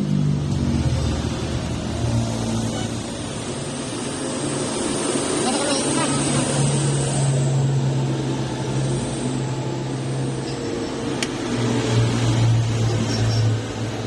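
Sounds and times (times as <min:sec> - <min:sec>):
motor engine droning: 0:00.0 - 0:14.0.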